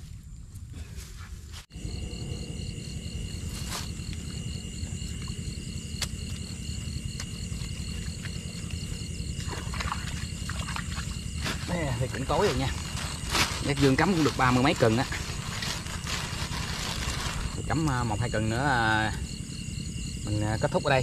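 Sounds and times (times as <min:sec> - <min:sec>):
crickets and night insects calling: 0:00.0 - 0:21.0
low rumble: 0:01.8 - 0:05.8.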